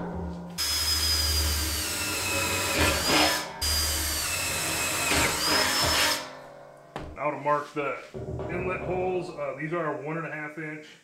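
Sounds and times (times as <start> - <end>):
drill boring through sheet steel: 0.6 - 6.2.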